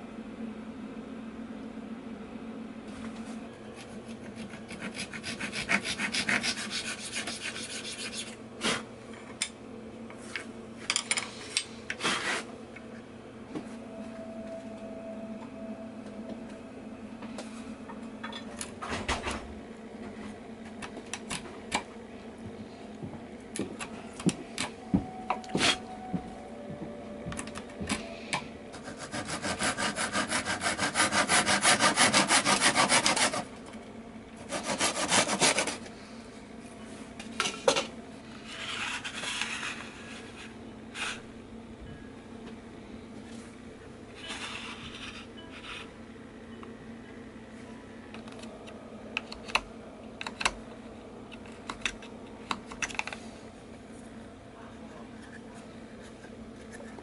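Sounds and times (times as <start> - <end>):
low steady hum: 0.0 - 57.0
hand saw cutting wood: 4.4 - 8.2, 28.8 - 33.4, 34.5 - 35.8.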